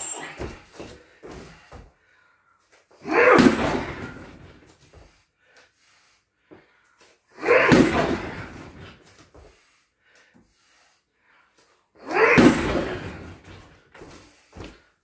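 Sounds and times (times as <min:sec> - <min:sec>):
sledgehammer thudding on tyre: 0:03.2 - 0:04.5, 0:07.5 - 0:08.9, 0:12.2 - 0:13.7.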